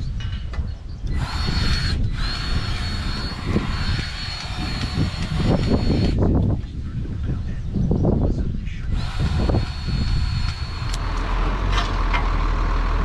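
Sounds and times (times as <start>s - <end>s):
compressed-air tool hissing: 1.1s - 6.2s, 9.0s - 11.1s.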